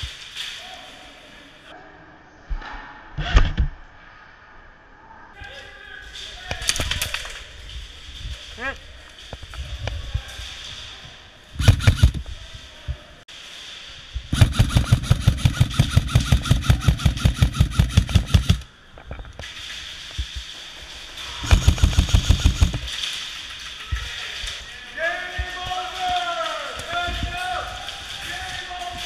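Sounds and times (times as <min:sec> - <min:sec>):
airsoft rifle firing bursts: 0:11.6 - 0:12.2, 0:14.3 - 0:18.7, 0:21.2 - 0:22.9.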